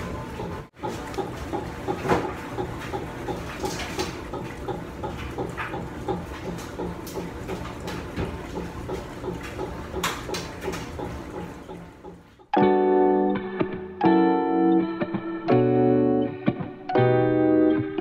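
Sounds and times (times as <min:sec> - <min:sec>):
washers and dryers humming: 0:00.0 - 0:13.5.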